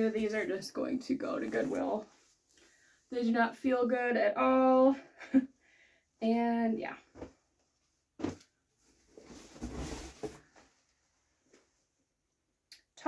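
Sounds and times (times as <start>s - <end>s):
cloth rustling: 1.2s - 2.9s, 7.1s - 11.8s.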